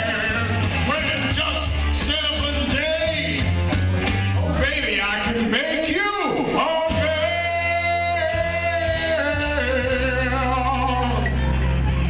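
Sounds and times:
man singing a long note: 6.6s - 11.3s.

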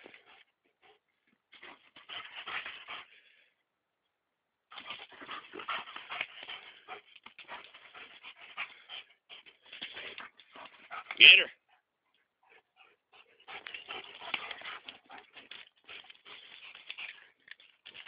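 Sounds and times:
dogs panting: 0.0s - 1.0s, 1.6s - 3.4s, 4.7s - 18.0s
dogs scuffling: 13.4s - 18.0s.

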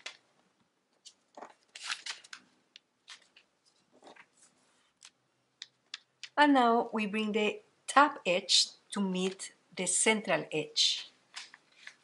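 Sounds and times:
paper rustling and crinkling: 1.0s - 5.2s, 11.3s - 12.0s.

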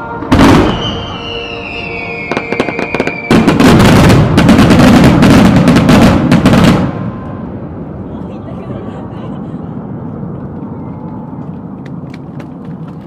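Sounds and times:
firework whistling: 0.0s - 7.4s
fireworks barrage of bursts: 0.0s - 7.4s
firework crackling pops: 2.2s - 6.9s.

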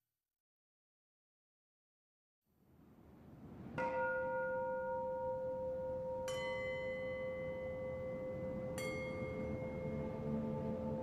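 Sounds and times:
struck bell tones: 3.8s - 11.0s.

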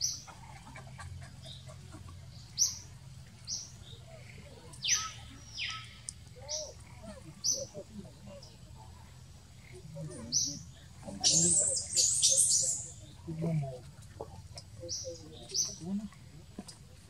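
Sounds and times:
high-pitched chirping calls: 4.7s - 6.8s, 11.2s - 13.0s.

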